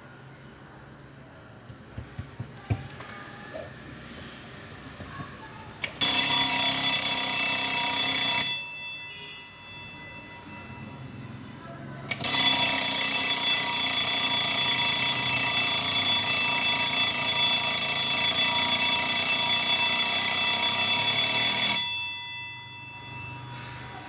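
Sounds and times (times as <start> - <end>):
alarm clock bell ringing: 6.0 - 24.0.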